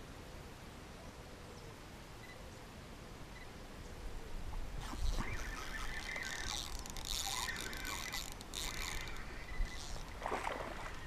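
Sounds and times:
fishing reel whirring: 4.8s - 11.0s.

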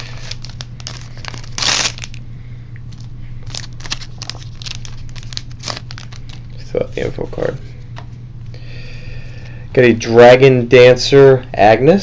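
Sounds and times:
foil card pack crinkling: 0.0s - 2.2s, 2.9s - 7.3s.

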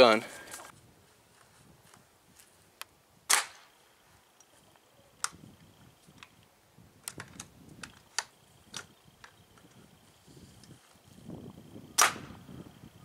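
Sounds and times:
airsoft rifle firing crack: 3.3s - 3.7s, 12.0s - 12.4s.

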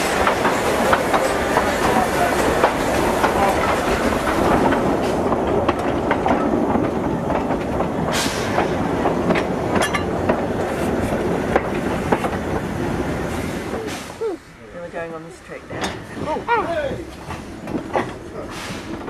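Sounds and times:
wheels clicking over rail joints: 0.0s - 13.0s, 15.4s - 19.0s
steam locomotive running rumble: 0.0s - 19.0s.

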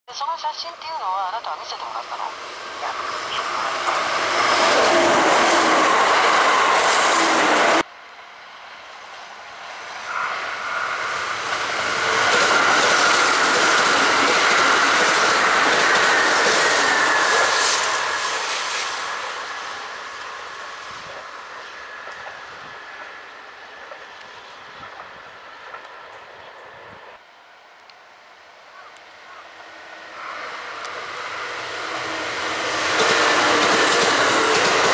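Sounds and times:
electric trains passing: 0.1s - 34.9s.

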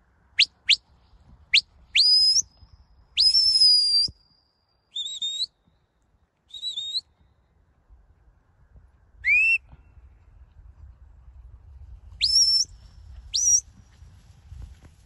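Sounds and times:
rising sharp whistles: 1.5s - 2.5s, 3.2s - 4.3s, 4.9s - 5.6s, 6.5s - 7.2s, 9.2s - 9.6s, 12.2s - 13.7s.

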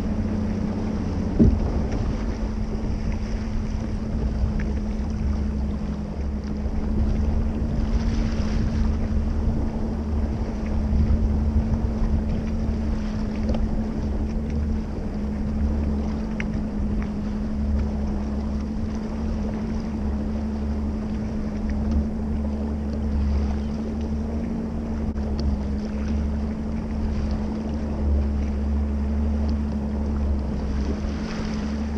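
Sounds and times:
outboard engine drone: 0.0s - 31.9s
water rushing along hull: 0.0s - 31.9s
wind buffeting microphone: 0.0s - 31.9s.

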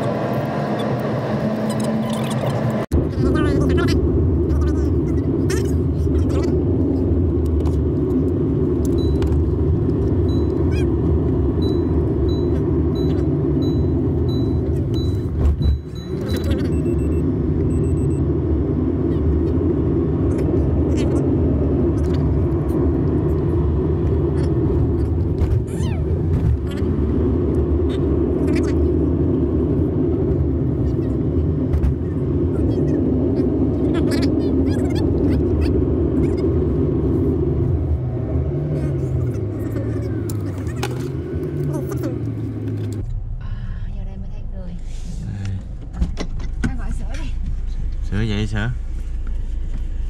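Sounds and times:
road and engine rumble in car: 0.0s - 50.0s
faint high beeps: 11.6s - 18.2s.

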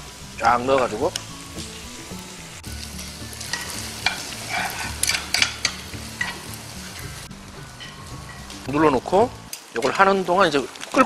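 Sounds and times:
rice sizzling on a griddle: 0.0s - 11.0s
metal spoons scraping stone: 3.5s - 6.4s.

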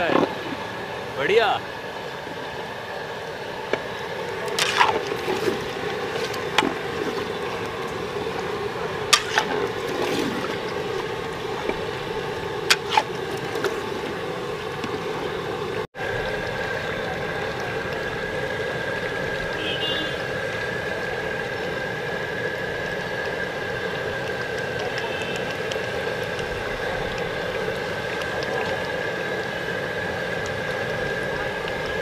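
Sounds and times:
thick gravy sloshing: 4.2s - 18.0s
metal ladle striking pot: 9.1s - 9.8s.

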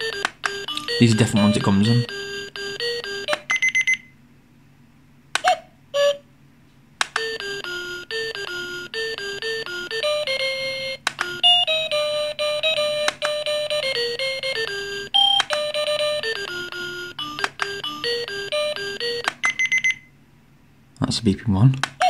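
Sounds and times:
electronic beeping alarm melody: 0.0s - 4.2s, 7.2s - 20.1s.

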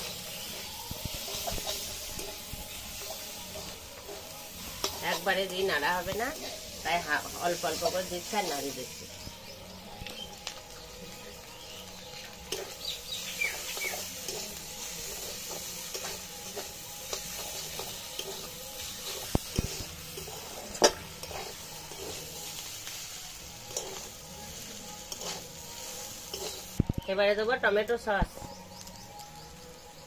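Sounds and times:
metal spatula scraping and clinking: 0.0s - 8.8s, 12.4s - 12.9s, 13.5s - 26.8s
noodles sizzling in a wok: 0.0s - 30.0s.

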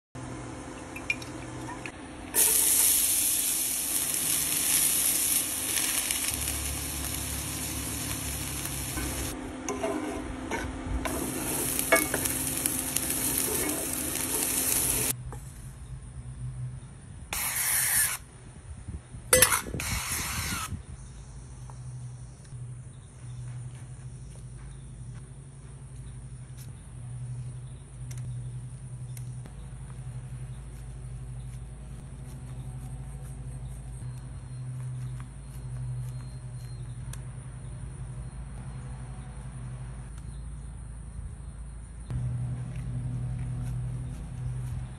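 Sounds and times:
vegetables sizzling in skillet: 2.3s - 10.2s, 11.1s - 15.2s
utensil scraping pan: 8.6s - 15.1s.

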